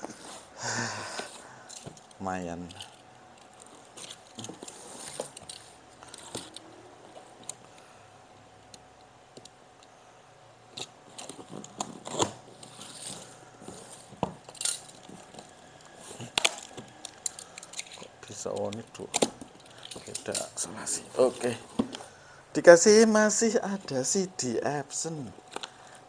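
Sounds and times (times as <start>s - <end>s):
cardboard and tape rustling: 2.6s - 7.5s.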